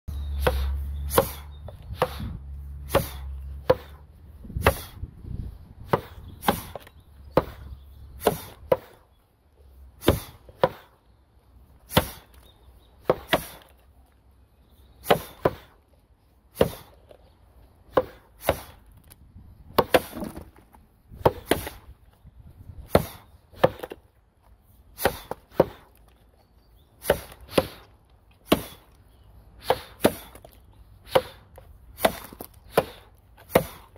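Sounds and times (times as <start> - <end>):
axe chopping into log: 0.4 - 2.3, 2.9 - 4.0, 4.6 - 4.9, 5.9 - 9.0, 10.0 - 10.9, 11.9 - 12.3, 13.0 - 13.7, 15.0 - 15.8, 16.6 - 17.0, 17.9 - 18.8, 19.7 - 21.8, 22.8 - 24.0, 25.0 - 25.9, 27.0 - 28.8, 29.6 - 31.4, 32.0 - 33.9
wood chips splitting: 18.0 - 21.8.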